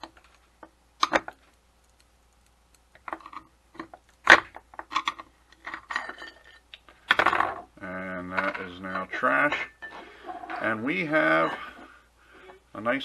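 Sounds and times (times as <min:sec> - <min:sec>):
metallic clicks and snaps: 0:00.0 - 0:05.7.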